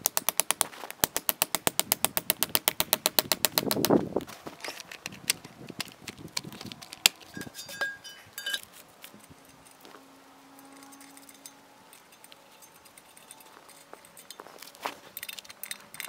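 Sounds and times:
metallic clinks and clanks: 6.8 - 16.0.

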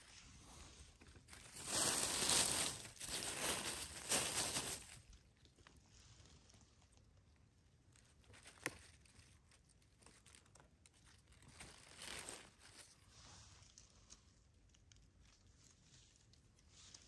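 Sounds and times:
dry leaves crackling: 1.3 - 5.2.

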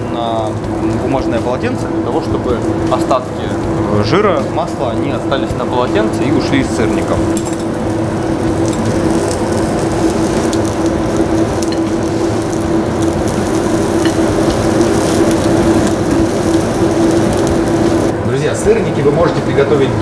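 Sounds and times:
pancakes sizzling in a pan: 7.9 - 18.1.

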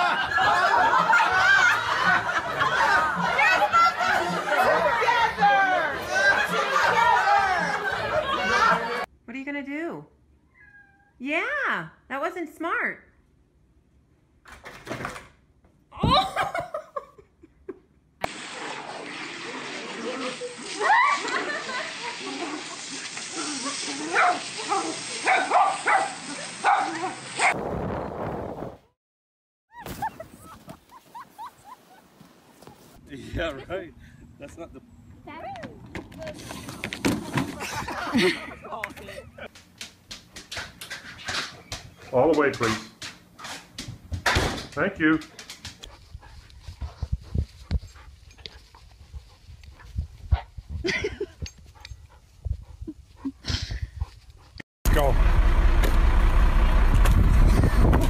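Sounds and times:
rough rumbling noise: 54.9 - 58.0.

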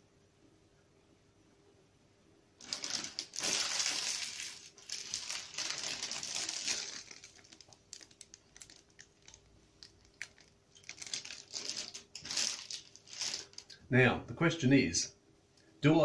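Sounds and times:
plastic wrapper crinkling: 2.6 - 13.8.

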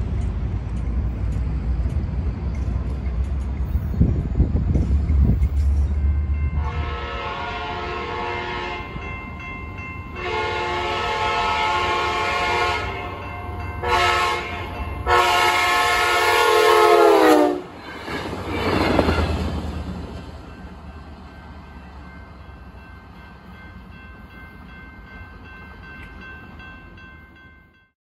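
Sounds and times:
train coaches rumbling by: 0.0 - 27.9
train horn chord: 6.4 - 9.1, 10.2 - 17.7.

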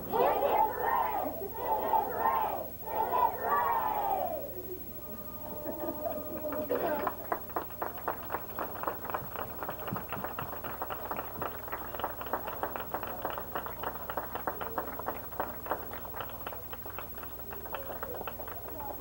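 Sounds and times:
audience applauding: 5.6 - 19.0.

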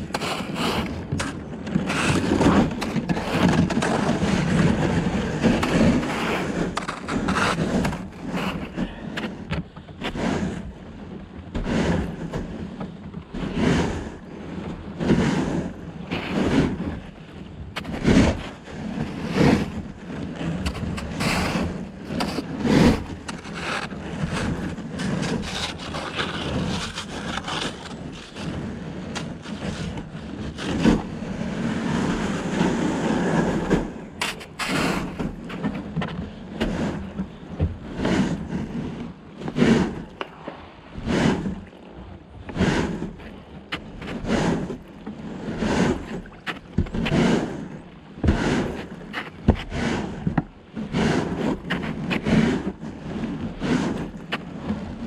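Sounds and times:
kayak hull scraping through ice: 0.0 - 55.0
ice cracking: 25.0 - 30.0.

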